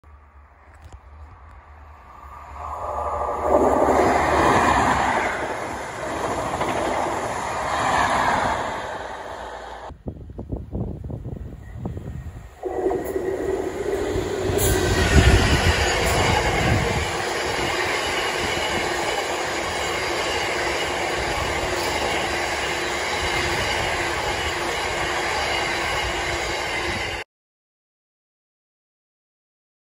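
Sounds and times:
freight train passing: 0.1 - 27.2.

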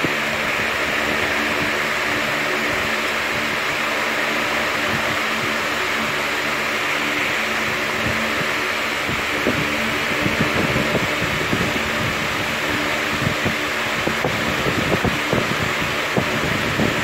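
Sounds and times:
fan whirring: 0.0 - 17.0.

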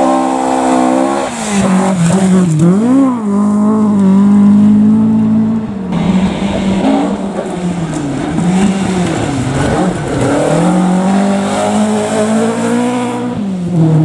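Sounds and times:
rally car engine revving: 0.0 - 14.0
gravel spraying from tyres: 0.9 - 4.1.

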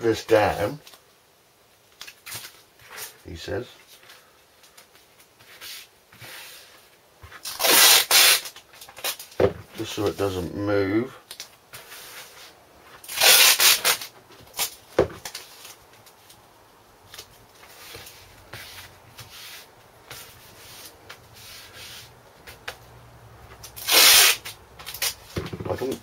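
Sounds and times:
hands rubbing tape and sandpaper: 5.3 - 10.3, 11.8 - 14.8, 17.2 - 22.8, 23.6 - 26.0
tape ripped off roll: 7.4 - 9.5, 13.0 - 15.5, 23.7 - 25.7.

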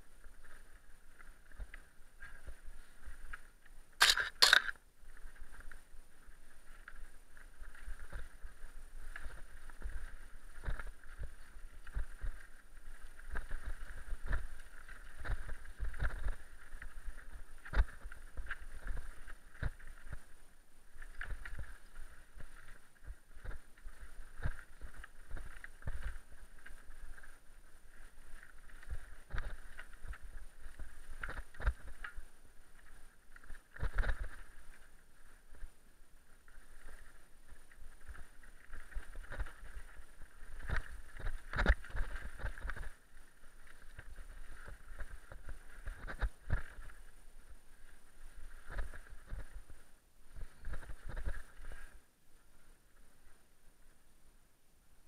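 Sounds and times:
mountain bike rattling on rocky trail: 4.0 - 5.7, 9.2 - 20.3, 36.8 - 47.0, 50.4 - 51.8.

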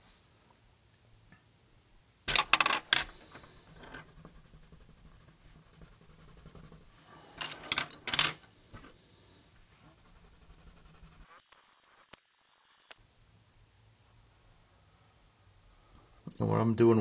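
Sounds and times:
wooden pencils clattering: 2.3 - 4.8, 6.5 - 8.9.

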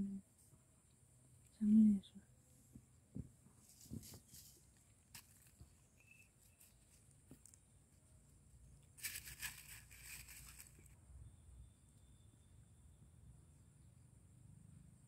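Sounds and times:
dry leaves rustling: 3.7 - 5.8, 9.0 - 11.0.

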